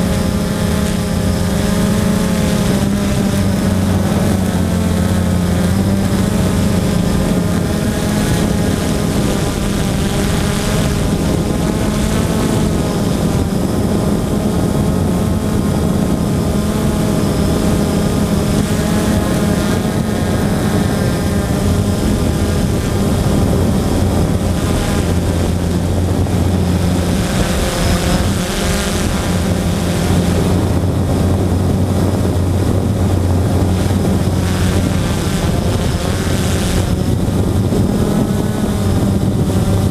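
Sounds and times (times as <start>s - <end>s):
drone propellers buzzing: 0.0s - 39.9s.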